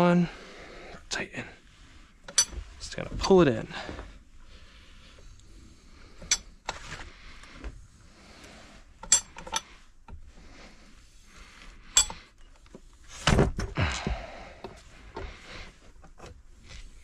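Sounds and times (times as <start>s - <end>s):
metal tools clinking: 2.3s - 2.6s, 6.2s - 6.5s, 9.0s - 9.7s, 12.0s - 12.3s.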